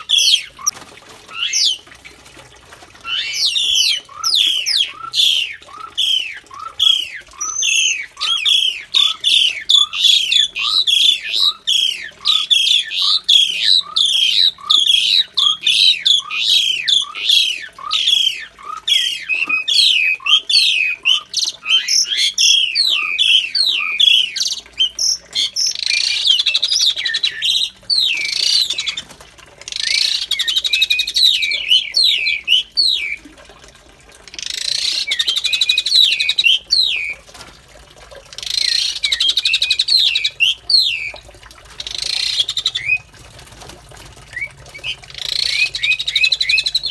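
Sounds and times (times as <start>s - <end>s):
starlings calling: 0.0s - 0.7s, 1.3s - 1.8s, 3.0s - 29.1s, 29.7s - 33.2s, 38.4s - 41.2s, 41.8s - 43.1s, 44.3s - 46.9s
harsh bird chatter: 0.0s - 1.8s, 3.0s - 33.2s, 41.8s - 43.2s, 44.3s - 46.9s.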